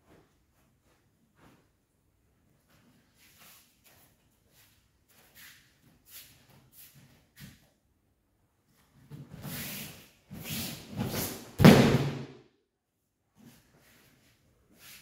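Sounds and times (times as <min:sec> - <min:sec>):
shuffling feet on mat: 0:00.0 - 0:07.7.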